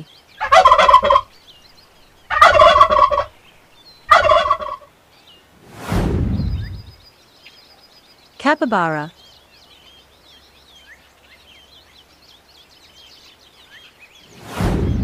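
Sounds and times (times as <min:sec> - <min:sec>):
faint bird chirps: 0:00.0 - 0:04.3, 0:06.4 - 0:15.0
turkey gobbling: 0:00.4 - 0:01.3, 0:02.3 - 0:03.4, 0:04.1 - 0:04.9
falling whoosh: 0:05.6 - 0:07.0, 0:14.3 - 0:15.0.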